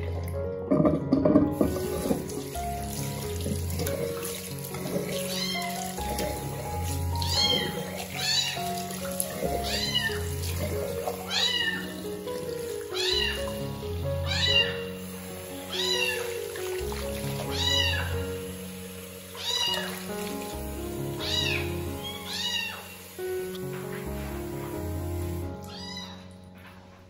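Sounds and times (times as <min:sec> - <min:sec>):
background music with held chords: 0:00.0 - 0:27.0
kitten meowing: 0:05.3 - 0:05.8, 0:07.2 - 0:08.7, 0:09.6 - 0:10.3, 0:11.2 - 0:12.0, 0:12.9 - 0:13.6, 0:14.2 - 0:14.9, 0:15.7 - 0:16.4, 0:17.4 - 0:18.3, 0:19.4 - 0:20.1, 0:21.2 - 0:23.0, 0:25.6 - 0:26.3.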